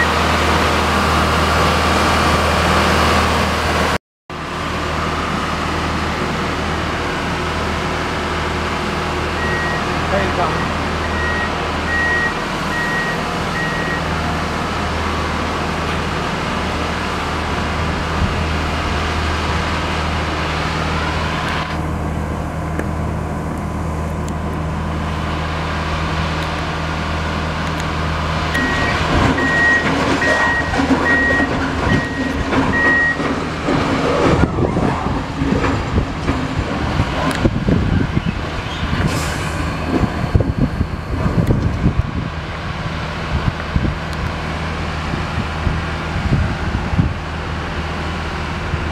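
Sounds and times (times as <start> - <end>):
backup alarm beeping: 0.0 - 0.2, 9.4 - 14.1, 28.6 - 33.3
diesel engine running: 0.0 - 48.9.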